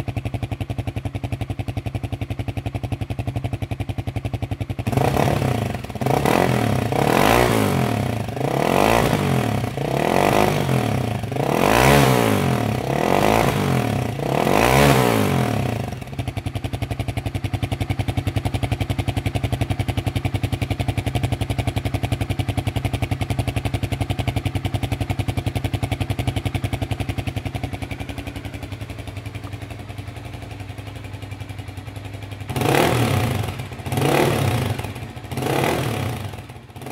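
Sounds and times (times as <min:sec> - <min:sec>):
motorcycle engine revving and idling: 0:00.0 - 0:36.9.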